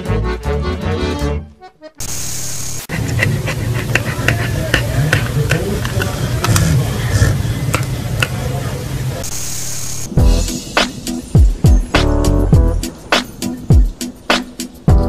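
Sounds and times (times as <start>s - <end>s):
dog mouthing a pacifier: 2.9s - 6.8s.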